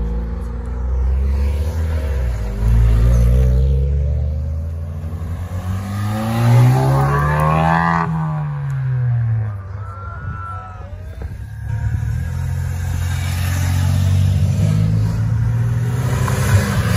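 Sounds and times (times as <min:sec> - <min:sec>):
car accelerating past: 0:00.7 - 0:09.6, 0:12.2 - 0:16.9.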